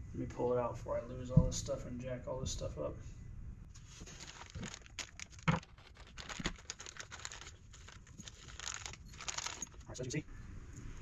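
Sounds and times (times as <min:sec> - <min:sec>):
plastic bags crinkling: 0:03.8 - 0:10.0
small metal parts clicking: 0:05.0 - 0:09.9.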